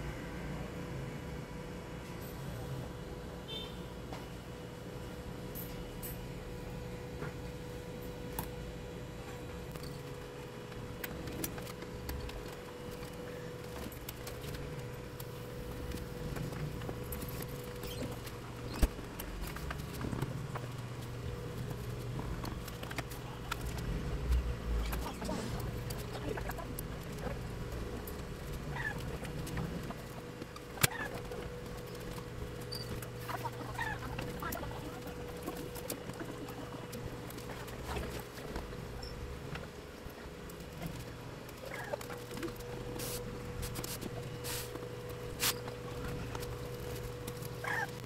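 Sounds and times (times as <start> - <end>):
steady low hum: 0.0 - 48.0
short hissing rustles: 43.0 - 44.8.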